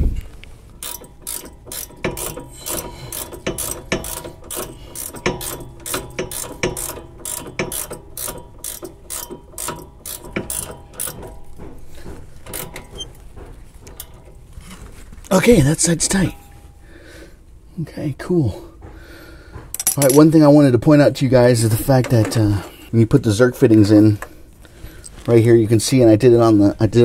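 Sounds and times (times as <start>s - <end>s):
ratcheting wrench clicking: 0.8s - 13.2s.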